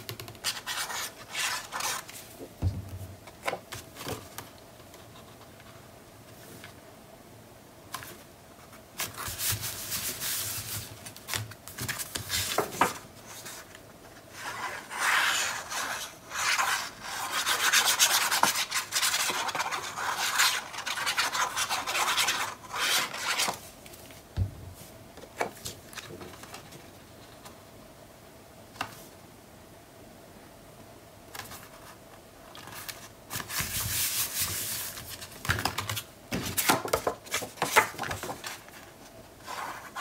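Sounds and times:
paper rustling: 0:32.5 - 0:40.0.

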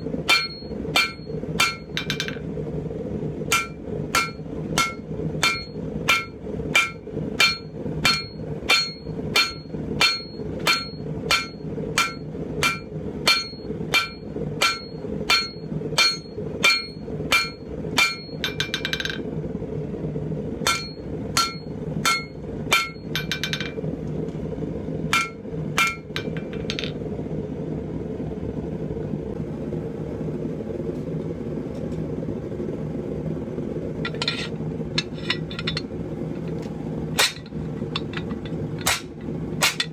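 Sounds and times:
forge humming: 0:00.0 - 0:39.9
hammer striking steel on anvil: 0:00.2 - 0:02.5, 0:03.5 - 0:19.3, 0:20.6 - 0:23.8, 0:25.1 - 0:27.0, 0:34.0 - 0:36.5, 0:37.2 - 0:39.9.

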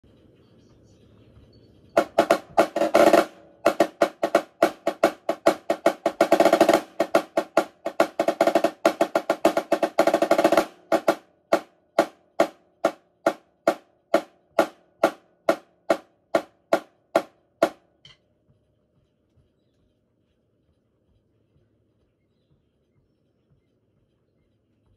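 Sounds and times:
snare drum rolls and strokes: 0:02.0 - 0:18.2.

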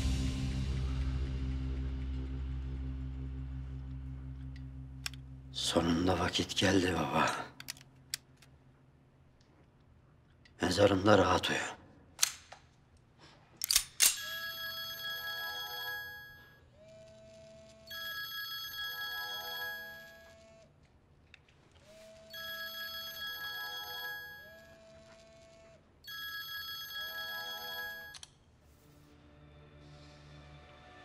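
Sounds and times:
electronic phone ringtone: 0:14.2 - 0:16.6, 0:17.9 - 0:20.5, 0:22.2 - 0:24.8, 0:26.1 - 0:28.3.

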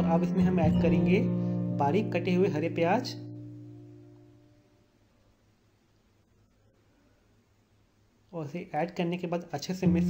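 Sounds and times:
background instrumental music: 0:00.0 - 0:04.6.

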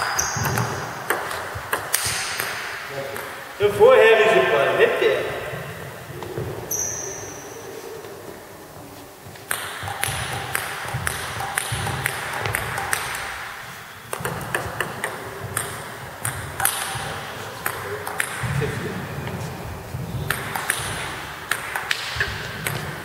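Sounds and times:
table tennis ball clicking: 0:00.0 - 0:02.6, 0:09.5 - 0:13.3, 0:14.1 - 0:18.6.

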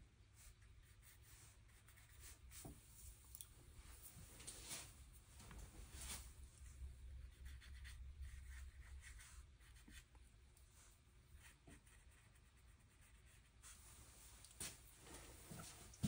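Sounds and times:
brush strokes on paper: 0:00.3 - 0:03.2, 0:05.7 - 0:10.1, 0:10.7 - 0:15.8.

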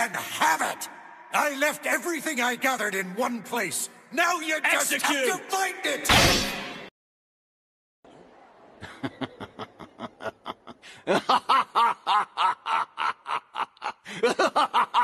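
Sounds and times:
man laughing: 0:08.8 - 0:15.0.

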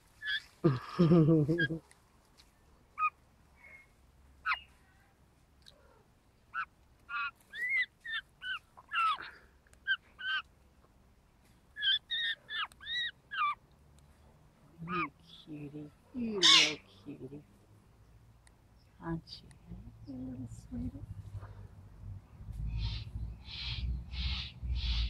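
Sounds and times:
magpie calling: 0:03.0 - 0:04.8, 0:06.5 - 0:10.4, 0:11.8 - 0:13.6, 0:16.4 - 0:16.9, 0:22.8 - 0:25.0.

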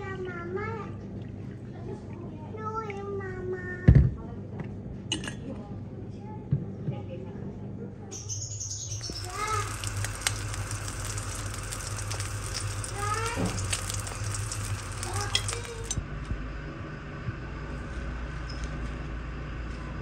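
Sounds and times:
eggs sizzling in oil: 0:08.9 - 0:16.0.

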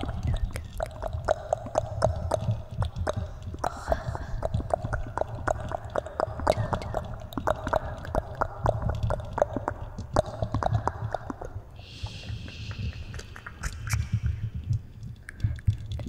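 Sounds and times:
steady hum: 0:00.0 - 0:15.7
wet mouth clicks and smacks: 0:00.0 - 0:16.0
breathy hiss: 0:11.8 - 0:14.5.

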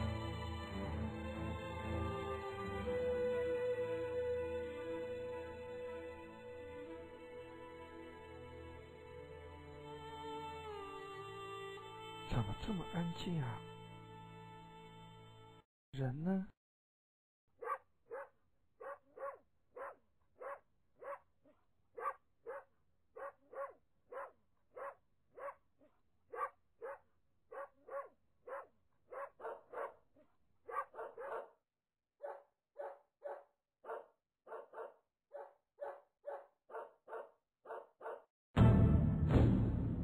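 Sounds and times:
dog barking: 0:17.6 - 0:31.6, 0:32.2 - 0:38.3.

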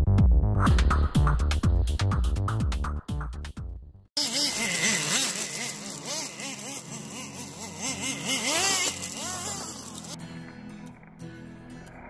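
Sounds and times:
small engine revving: 0:04.2 - 0:10.2.

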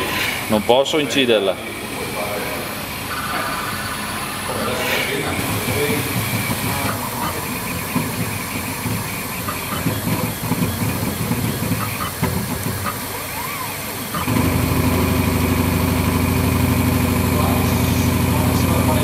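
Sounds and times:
motor humming: 0:00.0 - 0:19.0
machine clattering: 0:05.3 - 0:19.0.

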